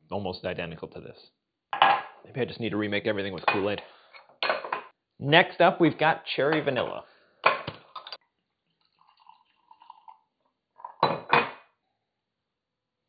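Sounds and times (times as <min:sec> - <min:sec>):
fizzy liquid pouring: 0:08.2 - 0:10.4
glass and metal clatter: 0:10.8 - 0:11.6.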